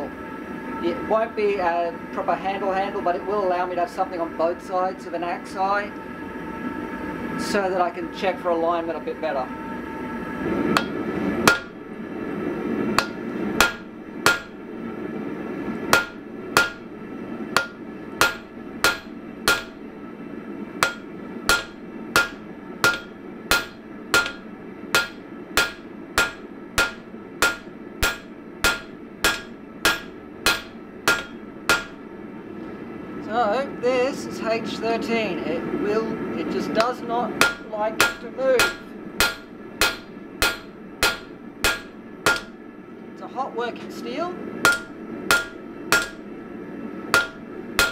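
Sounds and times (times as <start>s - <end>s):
hammer striking hot steel on anvil: 10.7s - 11.8s, 13.0s - 14.6s, 15.9s - 16.9s, 17.5s - 19.8s, 20.8s - 32.0s, 36.8s - 42.6s, 44.6s - 46.2s, 47.1s - 47.9s.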